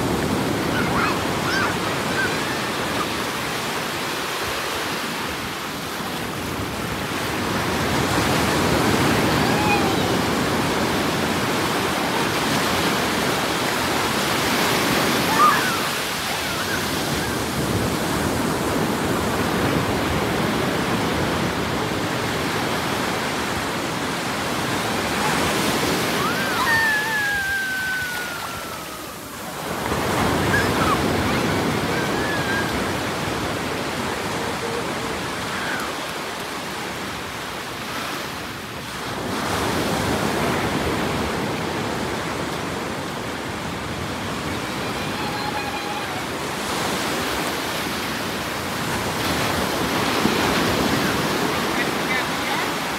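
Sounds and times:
ocean surf breaking: 0.0s - 52.9s
faint high cries: 0.6s - 3.3s, 9.1s - 10.4s, 15.1s - 17.6s, 24.8s - 36.2s, 44.4s - 46.6s.

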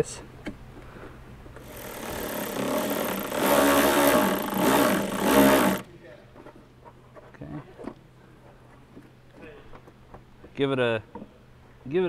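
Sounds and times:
power tool motor whirring: 1.6s - 5.9s.

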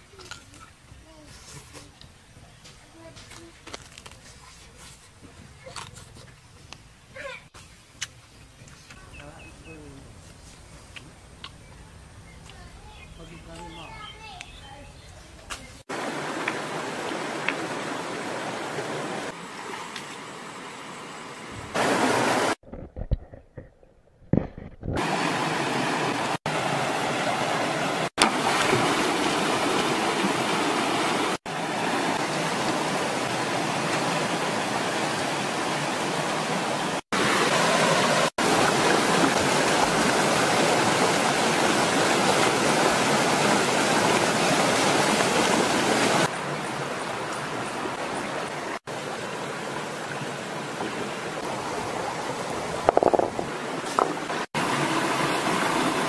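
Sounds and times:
stream rushing over rocks: 15.8s - 22.6s, 25.0s - 56.0s.

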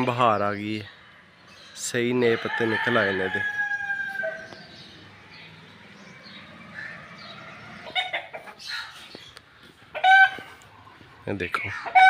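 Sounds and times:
rooster crowing: 2.2s - 5.2s
short chicken calls: 9.9s - 10.7s.

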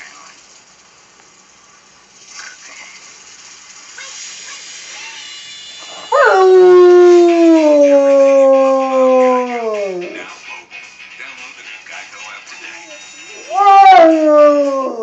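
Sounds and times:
dog howling: 5.9s - 10.2s, 13.4s - 15.0s.

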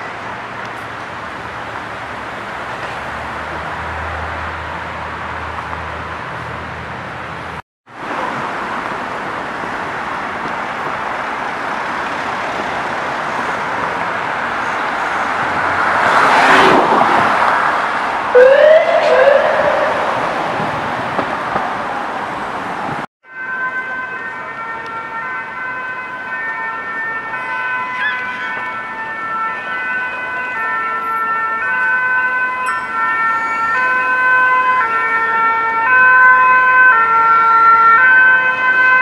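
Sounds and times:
emergency vehicle siren: 8.0s - 39.0s
vehicle passing: 12.2s - 23.1s
double rising tone: 18.3s - 21.2s.

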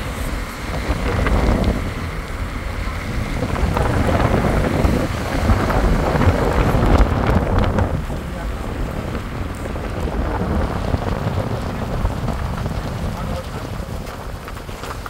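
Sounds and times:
car road noise: 0.0s - 15.0s
wind buffeting on microphone: 0.0s - 15.0s.

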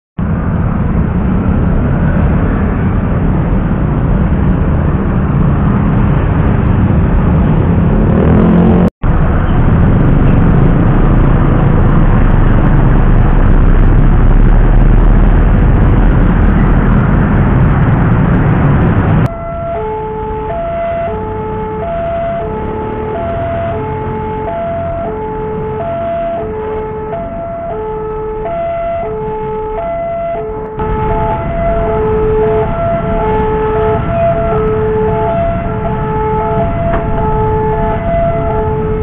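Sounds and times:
engine revving: 0.2s - 19.4s
motorcycles and cars passing: 0.2s - 39.0s
vehicles rumbling over rails: 0.2s - 39.0s.

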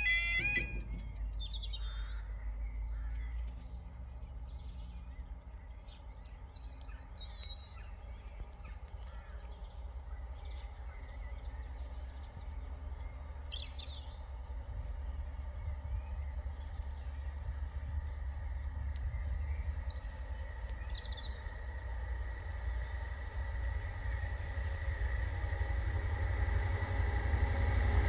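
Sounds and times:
two-tone crossing alarm: 0.0s - 1.2s
birds chirping: 0.0s - 26.6s
low steady rumble: 0.0s - 28.0s.

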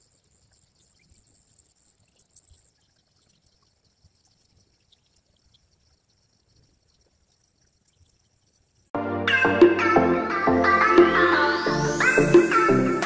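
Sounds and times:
faint ticks: 0.0s - 8.9s
steady high-pitched hiss: 0.0s - 9.0s.

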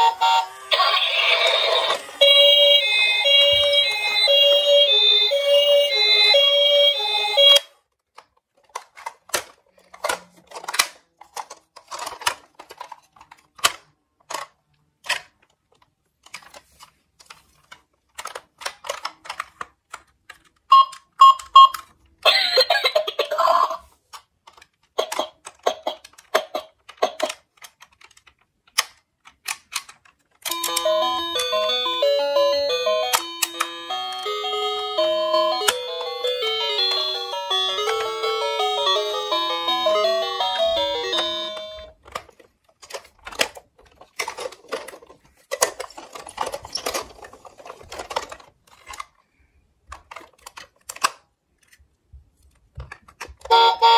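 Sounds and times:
toy electronic siren tune: 0.0s - 7.6s, 30.5s - 41.9s, 53.5s - 53.9s
chiming electronic tune: 2.2s - 7.6s, 30.5s - 41.9s
sharp plastic clicks: 24.1s - 30.6s, 49.9s - 51.8s.

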